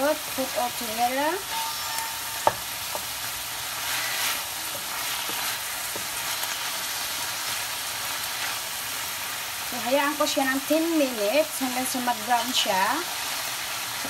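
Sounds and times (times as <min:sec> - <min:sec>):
meat and onion sizzling in pan: 0:00.0 - 0:14.0
utensil knocking against pan: 0:02.4 - 0:03.1.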